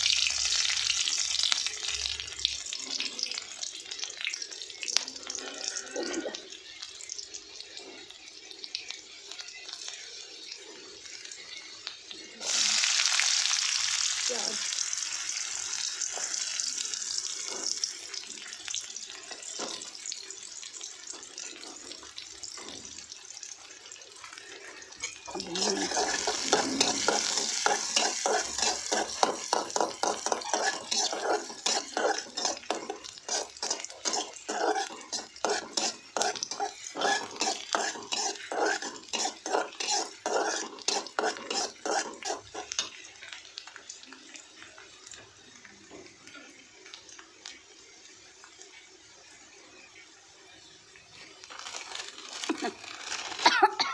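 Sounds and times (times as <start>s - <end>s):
onion sizzling in hot oil: 0.0s - 53.9s
spatula scraping and stirring pan: 17.0s - 18.4s, 24.3s - 43.4s.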